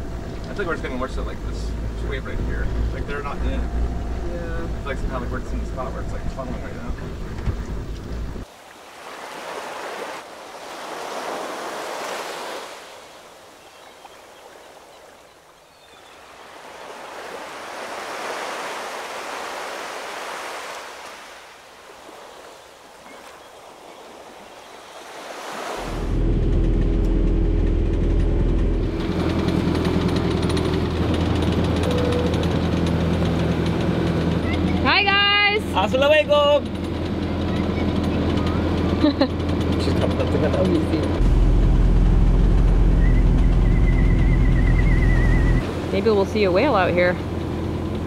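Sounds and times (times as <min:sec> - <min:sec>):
boat engine running: 0:00.0 - 0:09.9, 0:25.8 - 0:48.0
sea waves washing: 0:00.0 - 0:48.0.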